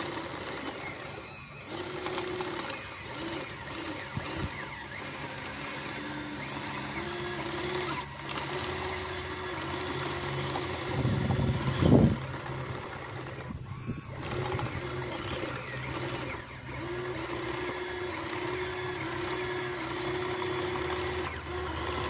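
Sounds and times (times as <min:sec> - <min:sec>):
toy electric motors whining: 0:00.0 - 0:22.0.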